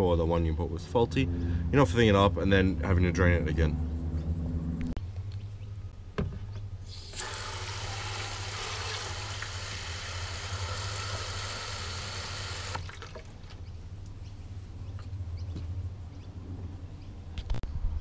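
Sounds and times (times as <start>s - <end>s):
water pouring from hose: 6.9s - 13.6s.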